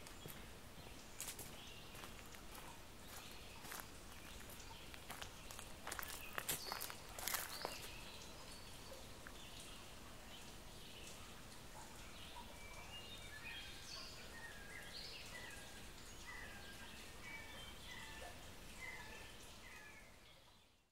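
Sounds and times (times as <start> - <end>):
faint natural ambience: 0.0 - 20.9
bird chirping: 0.1 - 20.9.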